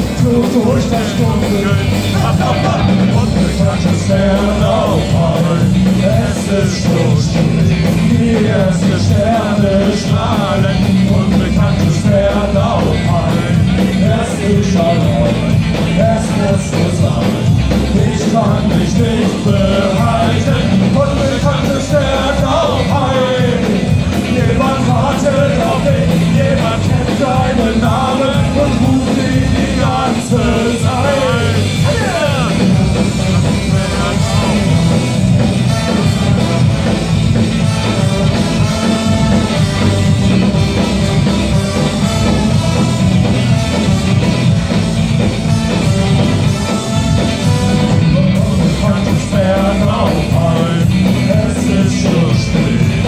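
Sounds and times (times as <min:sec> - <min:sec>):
ska-punk band playing live: 0:00.0 - 0:53.0
horns carrying melody: 0:13.1 - 0:50.4.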